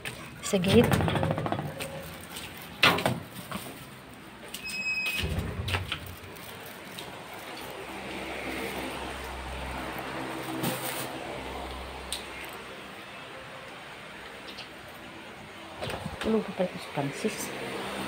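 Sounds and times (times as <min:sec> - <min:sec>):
gate squeaking: 0:04.6 - 0:05.9.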